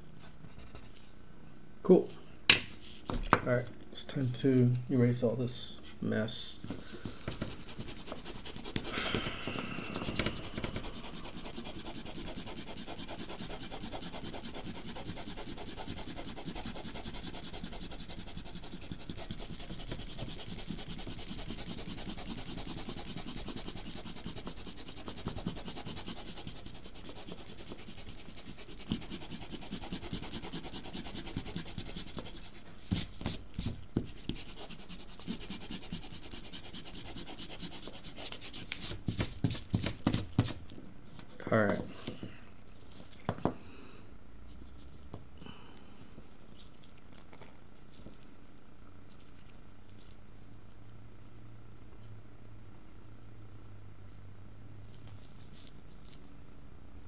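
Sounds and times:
eraser rubbing on paper: 7.3s - 9.2s, 9.8s - 40.6s.

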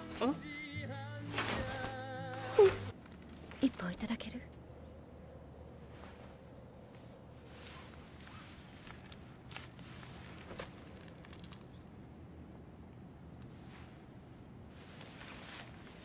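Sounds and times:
soft clicks and rustles: 1.4s - 4.2s, 7.0s - 11.9s.

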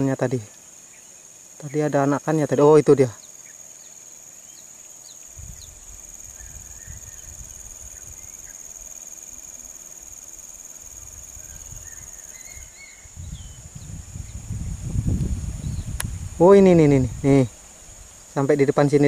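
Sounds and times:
insects droning: 0.0s - 19.0s
bird chirps: 11.4s - 14.4s
low rumbling on microphone: 13.1s - 18.1s.

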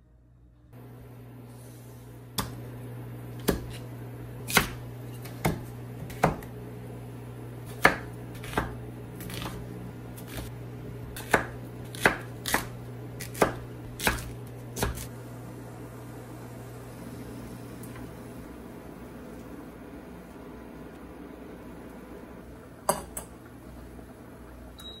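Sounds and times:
knife chopping on wooden board: 2.4s - 2.6s, 3.4s - 3.8s, 4.5s - 6.5s, 7.7s - 9.6s, 10.2s - 15.1s.

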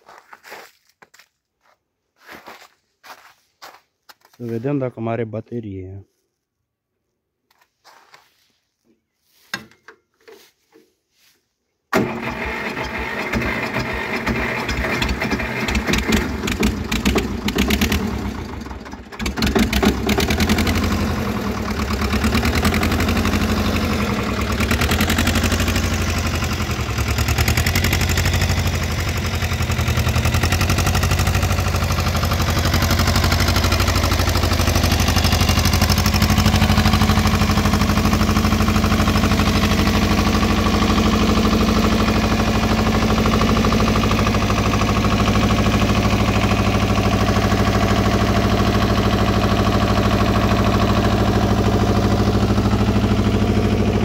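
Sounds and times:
diesel tractor engine starting: 11.9s - 54.0s
tractor engine idling: 11.9s - 54.0s.

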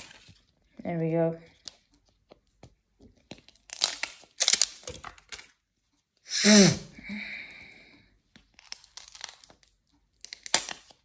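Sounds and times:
plastic capsule crackling: 3.2s - 5.6s.

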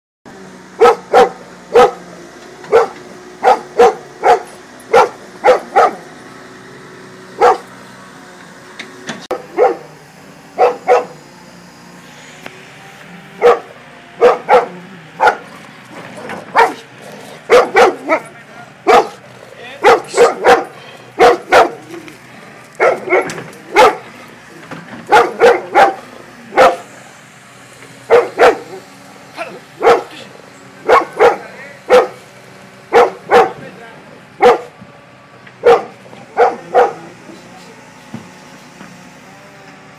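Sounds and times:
excavator engine running: 0.3s - 39.9s
dog barking: 0.8s - 2.0s, 2.7s - 6.0s, 7.4s - 7.7s, 9.3s - 9.9s, 10.6s - 11.2s, 13.4s - 15.6s, 16.5s - 16.8s, 17.5s - 19.2s, 19.8s - 21.8s, 22.8s - 24.1s, 25.1s - 26.9s, 28.1s - 28.8s, 29.8s - 30.2s, 30.8s - 32.2s, 32.9s - 33.6s, 34.4s - 34.7s, 35.6s - 37.1s.

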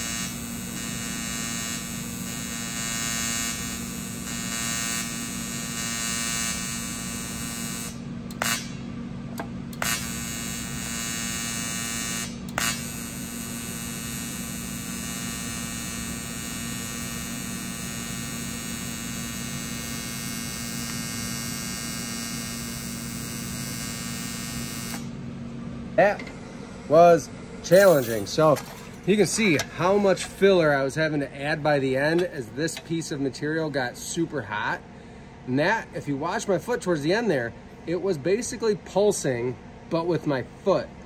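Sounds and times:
welding arc buzzing: 0.0s - 8.8s, 9.4s - 26.0s, 27.6s - 32.3s
welding arc snapping: 0.1s - 5.2s, 5.8s - 8.8s, 9.4s - 25.1s.

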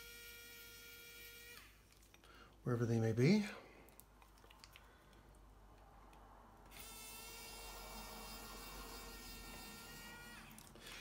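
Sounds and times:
electric screwdriver whining: 6.7s - 11.0s.

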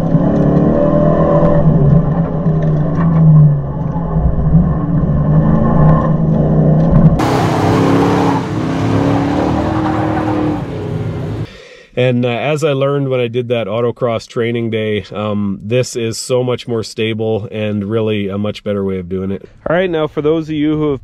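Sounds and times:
loud rushing noise: 7.2s - 11.5s
truck engine revving: 7.2s - 11.5s.

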